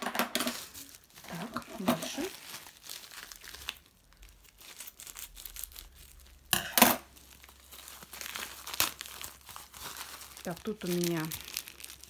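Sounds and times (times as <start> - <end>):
packaging crinkling: 0.4 - 12.0
packaging ripping: 0.5 - 12.0
sharp crackle: 2.1 - 12.0
scissors cutting packet: 8.1 - 12.0.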